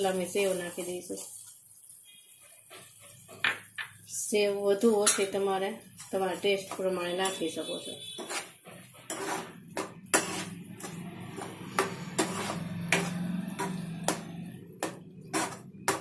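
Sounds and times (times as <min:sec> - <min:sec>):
spatula scraping pan: 0:06.0 - 0:16.0
spatula stirring thick gravy: 0:06.1 - 0:16.0.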